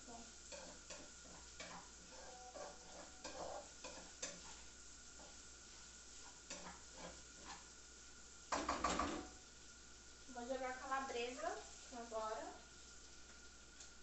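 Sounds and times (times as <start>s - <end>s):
meat sizzling in a pan: 0.0s - 14.0s
utensil scraping and knocking pan: 0.5s - 4.6s, 6.2s - 7.7s.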